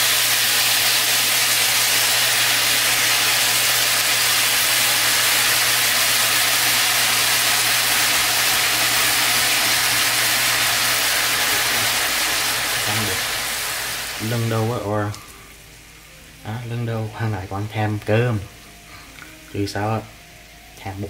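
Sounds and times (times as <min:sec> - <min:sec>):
meat sizzling in hot oil: 0:00.0 - 0:15.1.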